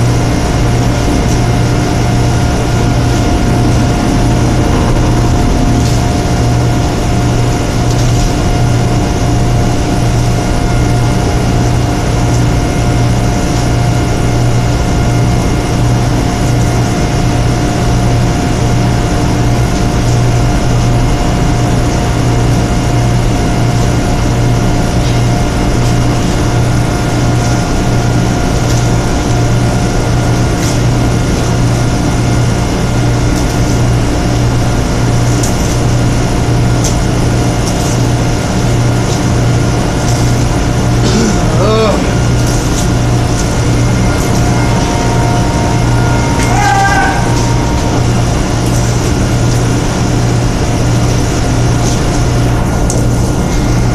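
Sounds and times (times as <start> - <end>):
machine throbbing and whining: 0.0 - 53.9.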